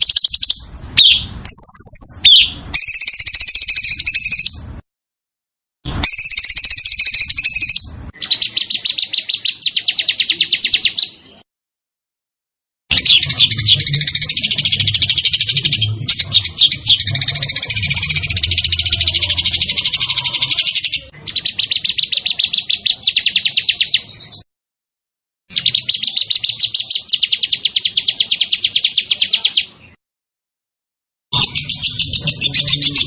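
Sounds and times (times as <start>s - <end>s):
songbird singing rolling trills: 0.0s - 4.7s, 6.0s - 11.4s, 12.9s - 24.4s, 25.5s - 29.9s.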